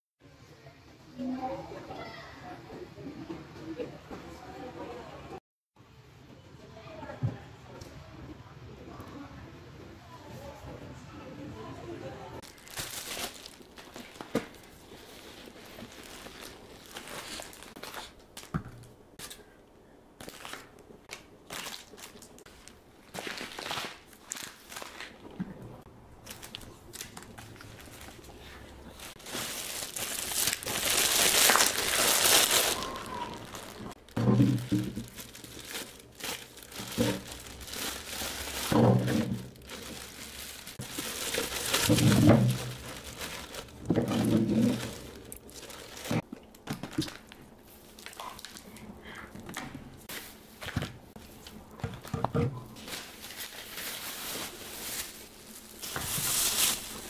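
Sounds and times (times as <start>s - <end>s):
packaging crinkling and rustling: 12.4s - 18.5s, 20.2s - 25.5s, 26.2s - 48.8s, 52.8s - 57.0s.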